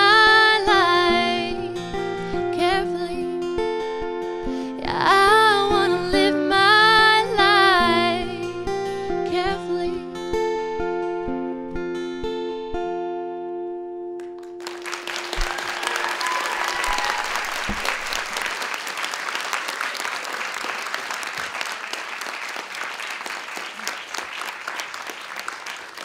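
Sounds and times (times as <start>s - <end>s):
audience applauding: 14.2s - 26.0s.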